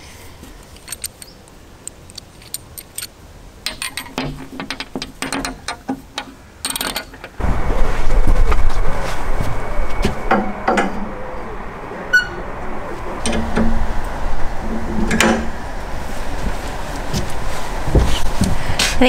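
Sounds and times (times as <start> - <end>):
small metal parts clinking: 0.6 - 7.4
loud steady rumble: 7.4 - 19.0.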